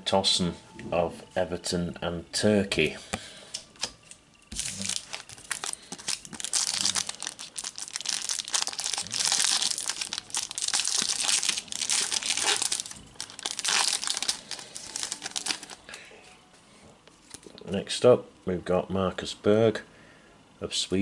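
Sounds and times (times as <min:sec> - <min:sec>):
foil wrapper crinkling: 0:04.5 - 0:16.0.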